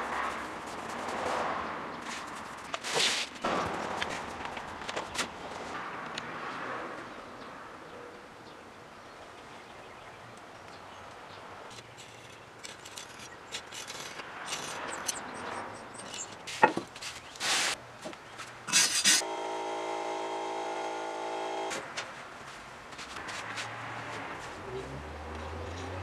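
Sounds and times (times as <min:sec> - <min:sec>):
scraper rasping on metal: 0:18.7 - 0:19.3
steady multi-pitch humming tone: 0:19.2 - 0:21.7.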